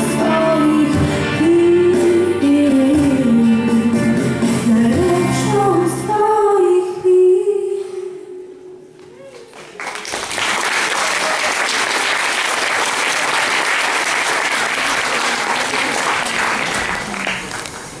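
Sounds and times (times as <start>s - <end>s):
audience applauding: 9.4s - 18.0s.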